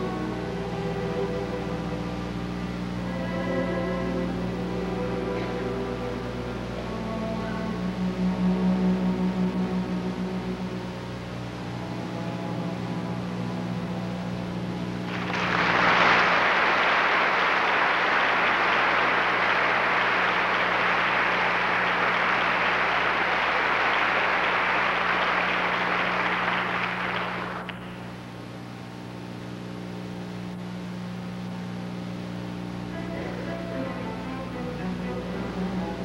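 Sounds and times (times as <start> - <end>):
low electrical hum: 0.0 - 36.0
audience applauding: 15.0 - 28.0.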